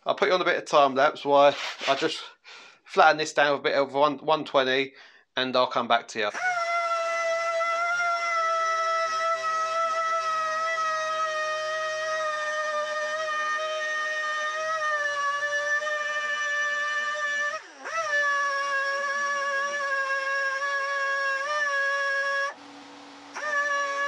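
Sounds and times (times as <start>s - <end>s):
sander whining on plastic: 8.0s - 24.0s.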